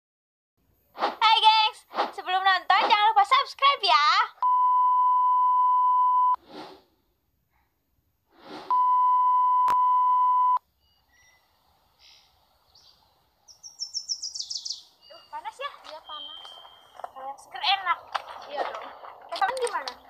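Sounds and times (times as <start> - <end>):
test-tone beep: 4.4 - 6.4, 8.7 - 11.4, 15.0 - 17.2
faint birds chirping: 10.6 - 20.0.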